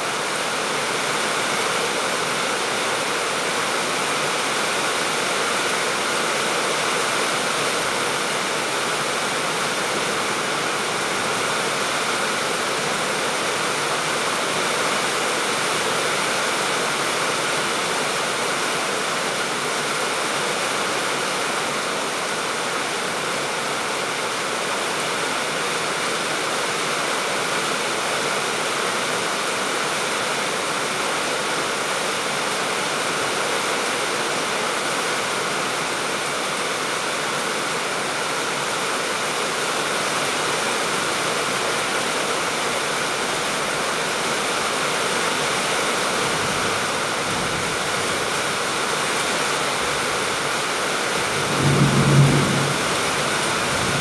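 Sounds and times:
rain on roofs and trees: 0.0s - 54.0s.

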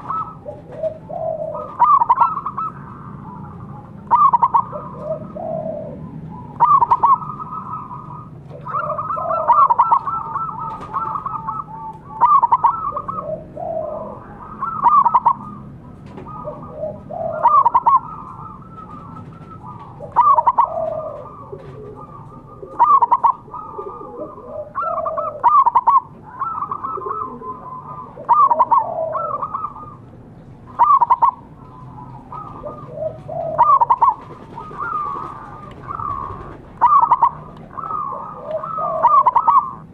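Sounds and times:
dove cooing: 0.0s - 39.9s.

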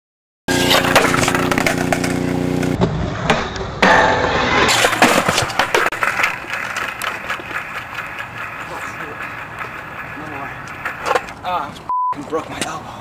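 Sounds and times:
steady hum: 0.5s - 2.8s
skateboard wheels rolling on concrete: 0.5s - 3.8s, 4.5s - 12.8s
skateboard clacking on ground: 4.7s - 11.5s.

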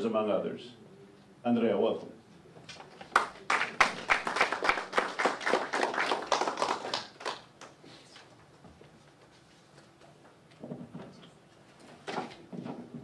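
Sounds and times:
audience applauding: 3.0s - 7.8s.

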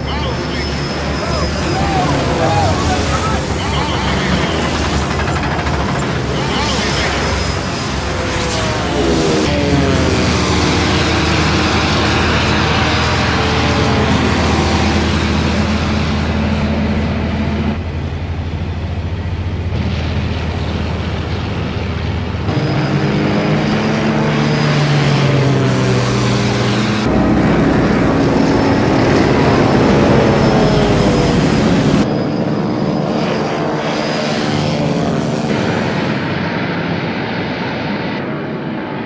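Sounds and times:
propeller plane engines droning: 0.0s - 39.0s.

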